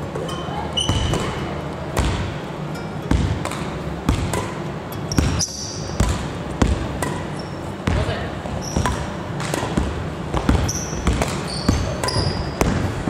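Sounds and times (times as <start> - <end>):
shoe squeak: 0.3 - 1.4, 5.1 - 6.0, 7.3 - 7.8, 8.6 - 9.2, 10.5 - 12.7.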